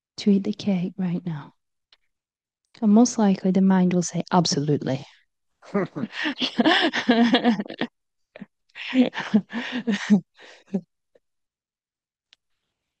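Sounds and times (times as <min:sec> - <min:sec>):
woman laughing: 0:06.1 - 0:10.8.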